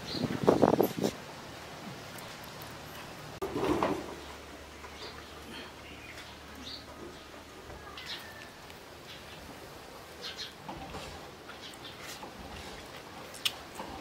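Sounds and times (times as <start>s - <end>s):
small birds chirping: 0.0s - 0.4s, 4.2s - 10.7s, 11.4s - 12.3s.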